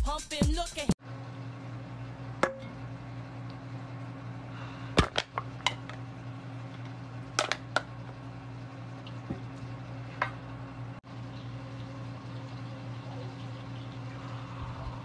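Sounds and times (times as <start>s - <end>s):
low hum: 1.0s - 15.0s.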